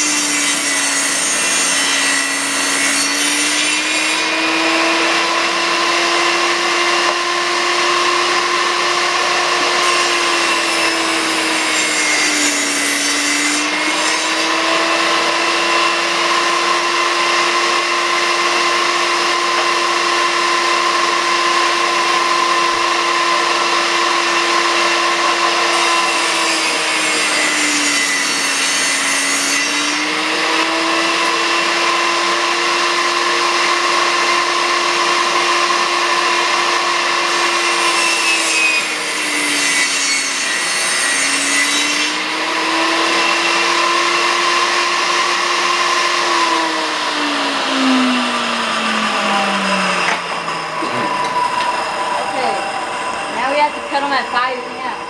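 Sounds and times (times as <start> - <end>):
table saw running: 0.0 - 55.0.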